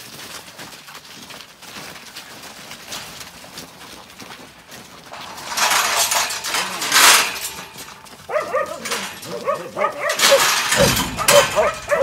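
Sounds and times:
dogs barking and yipping: 2.4s - 12.0s.

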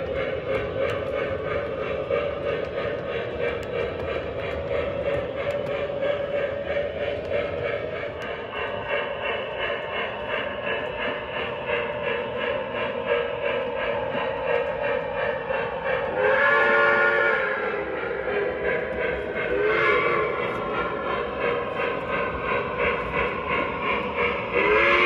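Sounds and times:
rhythmic steam chuffing: 0.0s - 25.0s
steam whistle: 16.1s - 17.9s, 19.5s - 20.4s, 24.5s - 25.0s.

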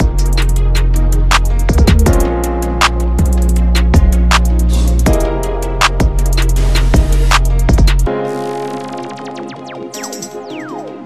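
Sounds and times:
held bass: 0.0s - 8.1s
drum beat: 1.6s - 2.4s, 7.0s - 8.1s.

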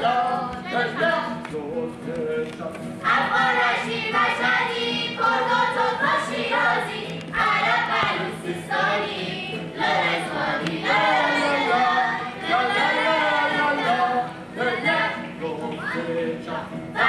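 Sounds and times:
children singing in chorus: 3.0s - 16.2s.

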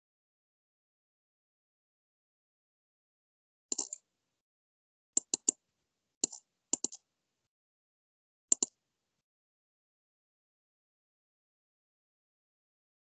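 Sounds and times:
computer mouse clicks: 3.7s - 4.0s, 5.2s - 5.6s, 6.2s - 7.1s, 8.5s - 8.8s.

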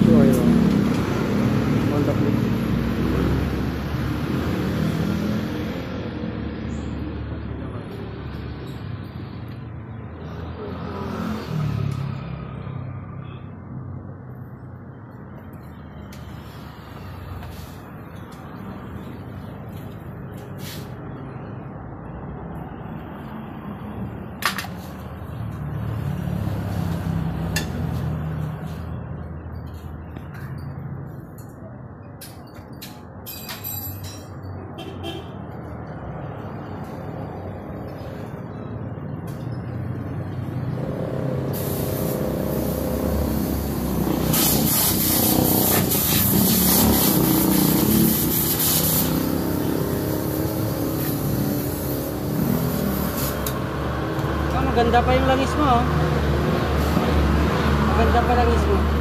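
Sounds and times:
vehicle running: 0.0s - 13.2s, 14.4s - 59.0s
loud hissing spray: 41.4s - 53.5s.

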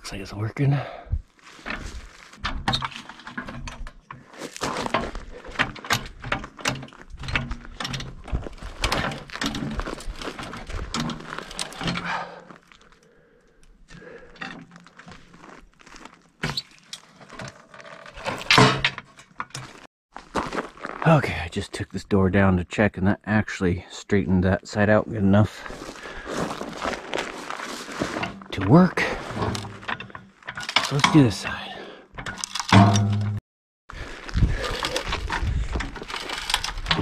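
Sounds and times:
hydraulic jack clanking: 32.2s - 33.4s.

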